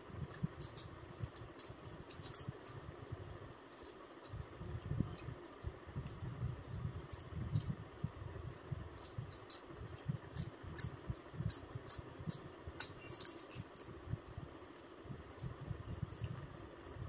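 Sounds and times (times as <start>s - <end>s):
chewing with wet mouth clicks: 0.2s - 5.4s, 6.0s - 16.5s.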